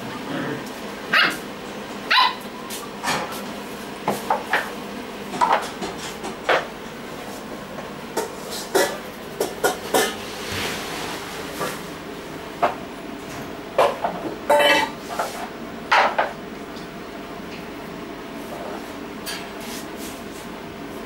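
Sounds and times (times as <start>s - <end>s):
puppies yapping: 1.1s - 1.4s, 2.1s - 2.6s.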